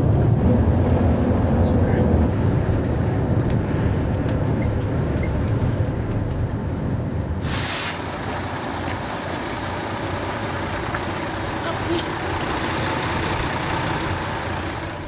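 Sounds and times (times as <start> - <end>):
coach engine and road rumble: 0.0 - 15.0
brief hiss: 7.4 - 8.0.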